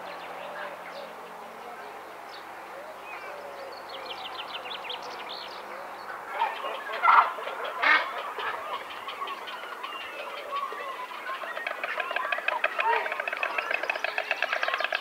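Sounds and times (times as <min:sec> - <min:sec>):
small songbirds chirping: 0:00.0 - 0:07.4
storks clattering bills: 0:11.4 - 0:15.0.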